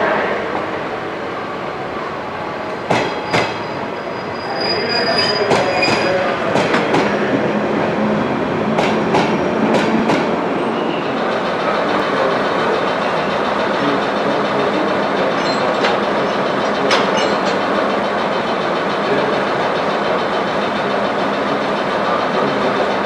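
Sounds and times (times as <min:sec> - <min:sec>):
high wheel squeal: 0:03.1 - 0:06.4, 0:10.6 - 0:11.2.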